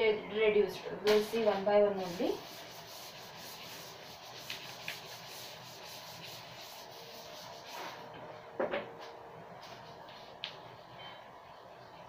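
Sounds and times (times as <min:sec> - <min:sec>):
duster scraping chalkboard: 0:01.1 - 0:08.1.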